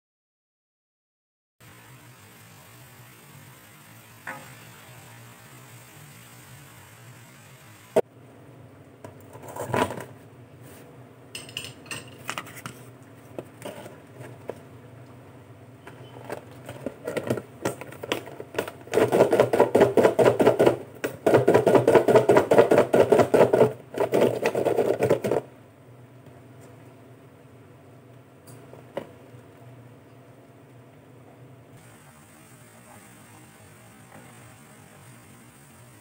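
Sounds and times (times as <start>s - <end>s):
vegetable sticks rattling in plastic container: 16.2s - 25.4s.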